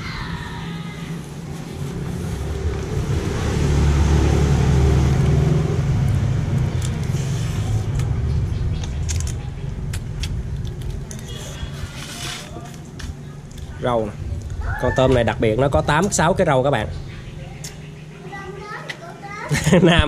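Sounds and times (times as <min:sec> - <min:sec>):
vehicle engine passing by: 0:00.0 - 0:18.8.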